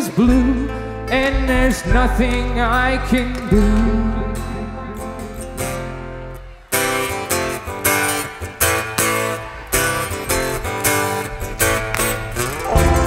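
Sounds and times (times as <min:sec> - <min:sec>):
acoustic guitar chords strummed: 0:00.0 - 0:13.0
plucked strings: 0:06.7 - 0:13.0.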